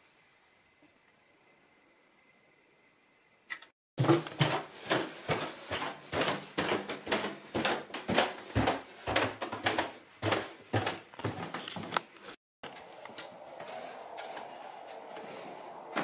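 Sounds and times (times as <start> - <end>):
quick footsteps on indoor floor: 4.0 - 15.4.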